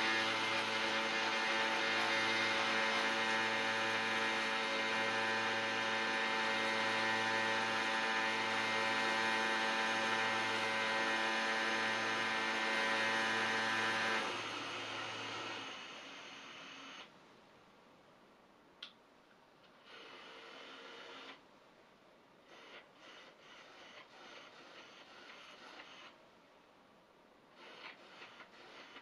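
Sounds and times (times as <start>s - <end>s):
blind motors whining hum: 0.0s - 17.1s, 22.4s - 26.2s, 27.5s - 29.0s.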